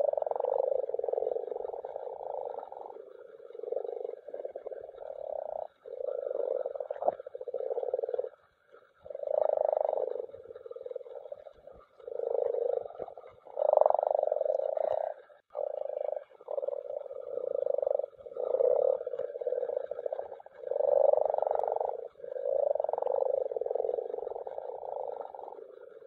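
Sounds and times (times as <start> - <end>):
frogs croaking in chorus: 0.0 - 26.0.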